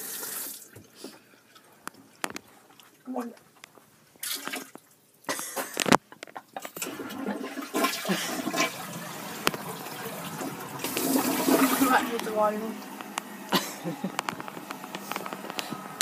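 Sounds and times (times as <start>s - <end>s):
toilet flushing: 0.0s - 1.0s, 6.7s - 16.0s.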